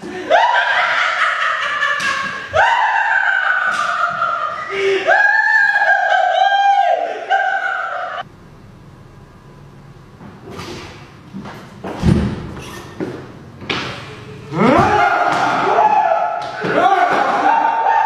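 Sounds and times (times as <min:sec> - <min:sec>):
ghostly laughing shriek: 0:00.0 - 0:08.2.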